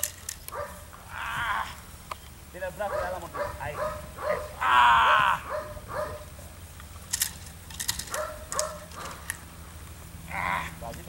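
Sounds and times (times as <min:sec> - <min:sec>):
sharp clicks: 0:00.0 - 0:00.6, 0:02.0 - 0:02.4, 0:06.7 - 0:09.5
dog barking and yelping: 0:00.5 - 0:01.3, 0:02.8 - 0:06.4, 0:08.0 - 0:09.3.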